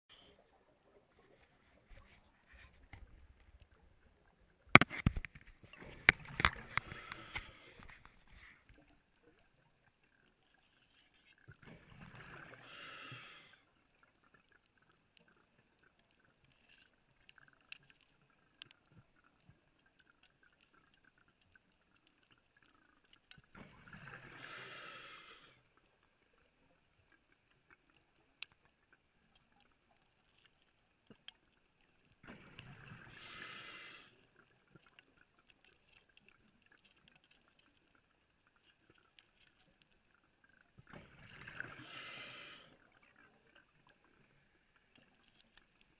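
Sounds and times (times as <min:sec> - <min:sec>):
underwater exhalation bubbles: 0:23.5 - 0:24.6, 0:32.2 - 0:33.8, 0:40.8 - 0:42.6
faint clicks: 0:42.8 - 0:45.9.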